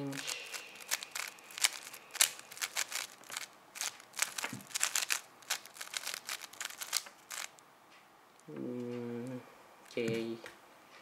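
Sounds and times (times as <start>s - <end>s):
puzzle cube layers clicking: 0.1s - 7.6s.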